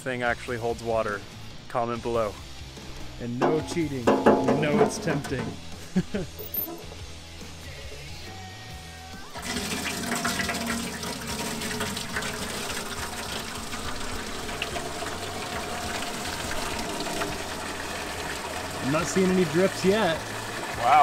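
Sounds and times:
water gushing into metal tank: 9.4 - 21.0.

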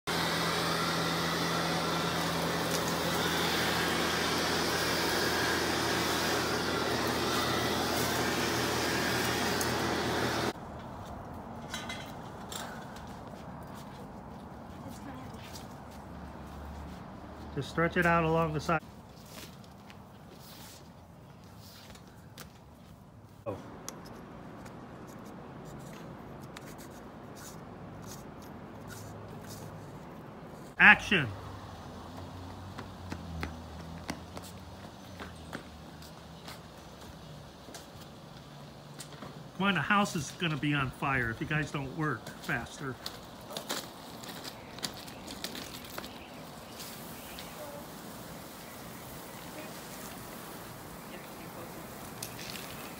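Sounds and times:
leaf blower running: 0.1 - 10.6.

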